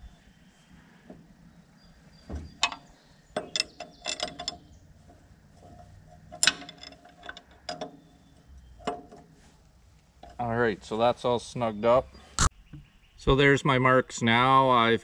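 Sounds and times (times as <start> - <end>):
wrench metallic clicks and clinks: 2.6 - 4.7, 5.7 - 8.2.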